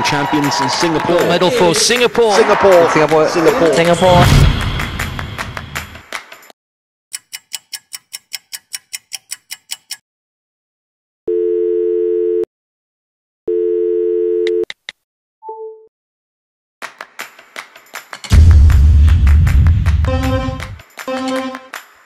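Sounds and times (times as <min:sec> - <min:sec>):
rapid ticks: 0:07.1 - 0:10.0
telephone ringing tone: 0:11.3 - 0:12.5, 0:13.5 - 0:14.7.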